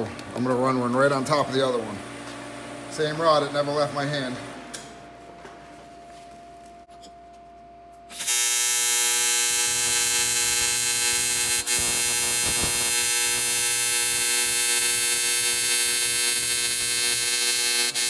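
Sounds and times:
welding arc buzzing: 8.1s - 18.0s.

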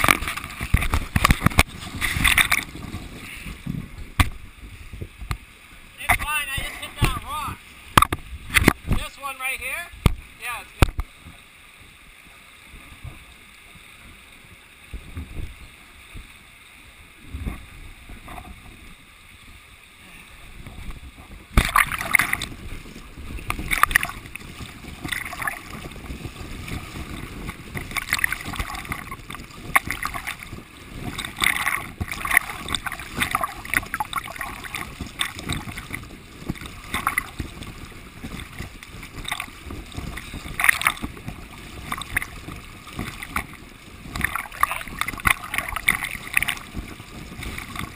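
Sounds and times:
river water rushing: 0.0s - 4.6s, 5.4s - 47.9s
water splashing against lens: 0.0s - 5.4s, 6.0s - 11.1s, 20.6s - 47.9s.

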